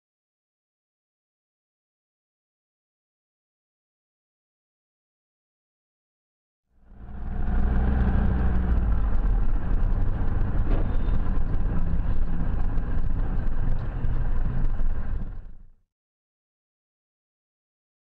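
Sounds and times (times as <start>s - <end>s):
car engine and road noise: 6.8s - 15.8s.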